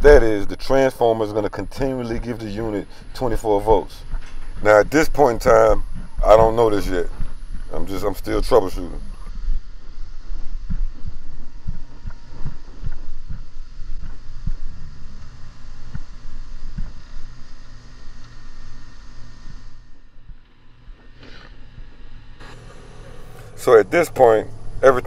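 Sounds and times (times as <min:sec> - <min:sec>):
faint steady hum: 0:00.0 - 0:25.0
wind rumble on microphone: 0:01.6 - 0:18.2.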